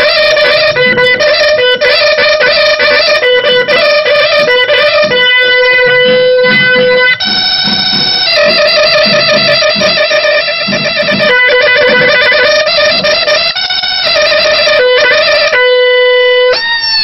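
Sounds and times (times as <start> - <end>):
reedy horn pipe melody: 0.0 - 17.0.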